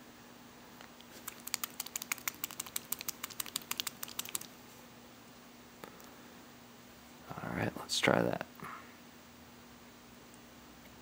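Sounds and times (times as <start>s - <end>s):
pen rattling when shaken: 1.1s - 4.5s.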